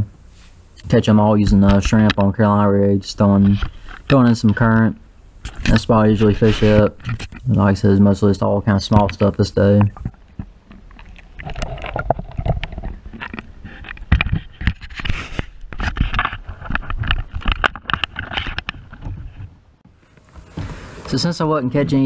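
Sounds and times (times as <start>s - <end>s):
knocks and scrapes: 1.4s - 22.0s
water splashing and sloshing: 9.9s - 13.9s.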